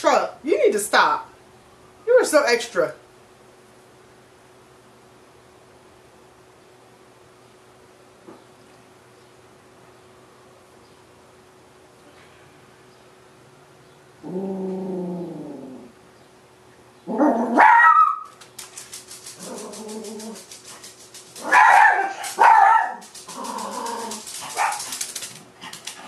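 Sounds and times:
dogs barking: 17.2s - 18.4s, 21.4s - 26.0s.

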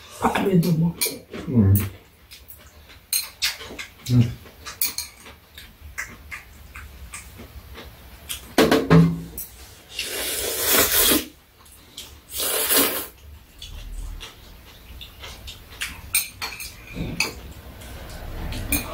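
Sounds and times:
chopsticks clicking against bowls: 0.6s - 8.5s, 13.6s - 18.9s
noodles being slurped: 9.8s - 11.3s, 12.3s - 13.2s.

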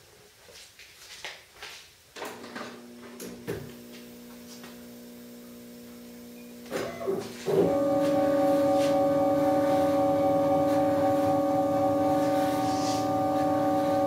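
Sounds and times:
milling machine spindle whine: 5.8s - 14.0s.

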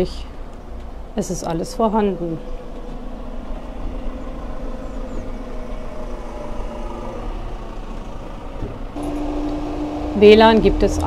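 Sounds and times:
engine idling: 5.6s - 11.0s.

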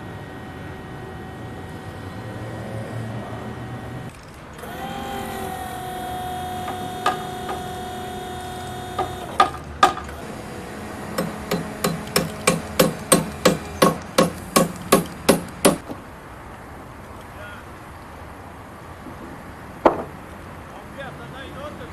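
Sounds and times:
machine hum: 0.0s - 15.8s
hammer striking timber beam: 4.6s - 16.0s, 19.8s - 20.2s.

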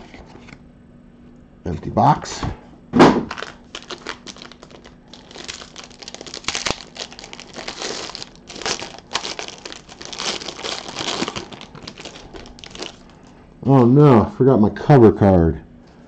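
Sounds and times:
foil wrapper crinkling: 3.3s - 13.3s.

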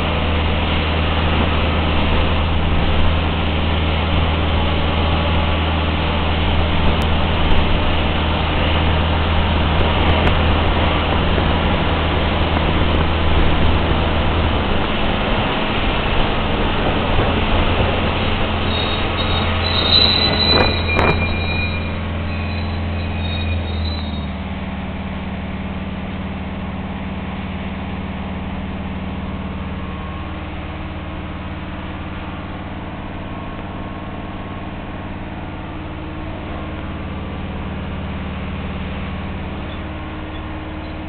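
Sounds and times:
road and tyre noise: 0.0s - 41.0s
brief high whine: 17.8s - 24.6s.

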